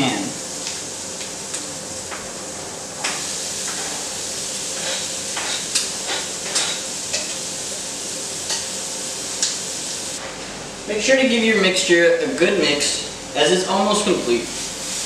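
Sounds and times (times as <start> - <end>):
food sizzling in frying pan: 0.0 - 10.2, 14.2 - 15.0.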